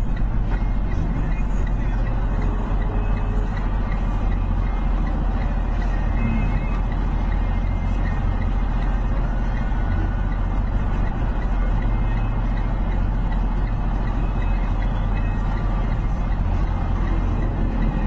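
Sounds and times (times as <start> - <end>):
vehicle engine and tyres rumbling: 0.0 - 18.0.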